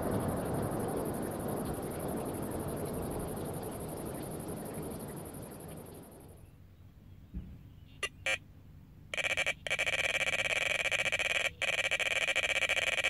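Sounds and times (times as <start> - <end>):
bite alarm beeps: 8.0 - 8.4, 9.2 - 13.0.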